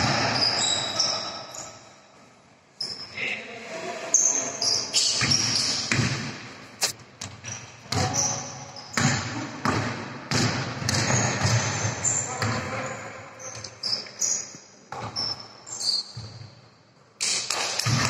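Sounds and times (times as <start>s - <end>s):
shoe squeaks: 0.3s - 1.9s, 2.8s - 3.2s, 4.1s - 5.9s, 6.8s - 9.0s, 11.0s - 16.4s
basketball bouncing on court: 5.2s - 6.4s, 7.2s - 12.9s, 17.5s - 18.0s.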